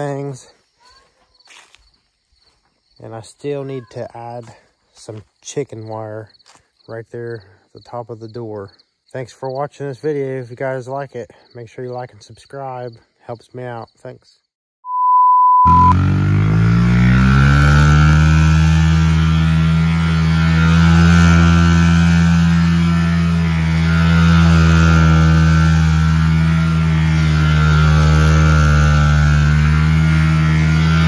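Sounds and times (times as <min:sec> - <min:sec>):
mini dirt bike engine running: 0:15.9 - 0:31.0.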